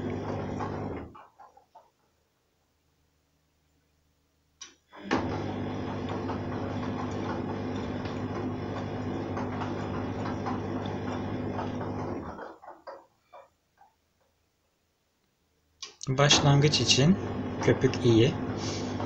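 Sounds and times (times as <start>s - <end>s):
washing machine drum churning: 0.0s - 1.8s, 5.0s - 13.9s, 16.2s - 19.0s.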